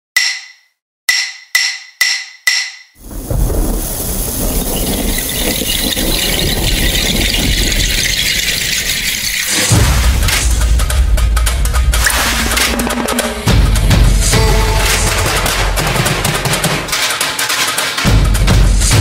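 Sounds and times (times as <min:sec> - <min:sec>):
rumbling hissing noise effect: 0:03.0 - 0:10.8.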